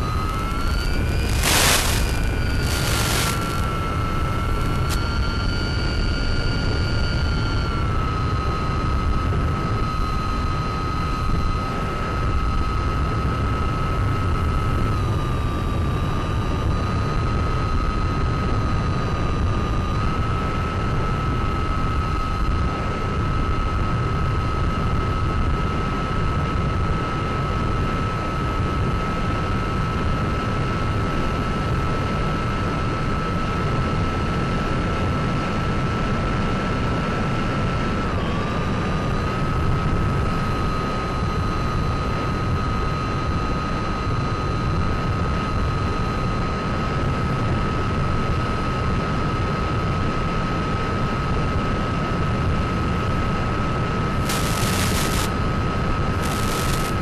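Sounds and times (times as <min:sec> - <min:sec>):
wind rush: 0:00.0 - 0:05.0
electric motor whine: 0:00.0 - 0:08.7, 0:54.2 - 0:55.4, 0:56.1 - 0:57.0.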